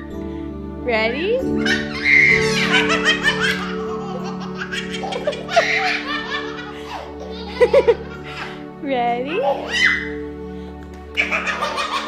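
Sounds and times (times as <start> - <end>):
babies laughing: 1.6 - 10.3, 11.1 - 12.0.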